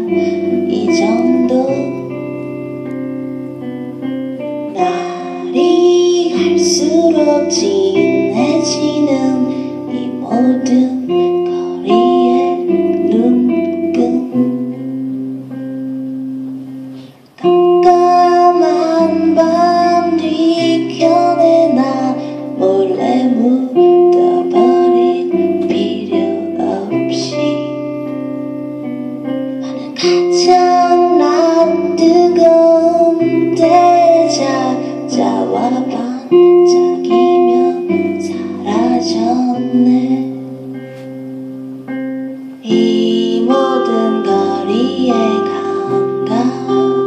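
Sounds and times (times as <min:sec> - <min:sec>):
person singing: 0:00.0 - 0:41.2, 0:41.8 - 0:47.0
guitar chords: 0:00.0 - 0:47.0.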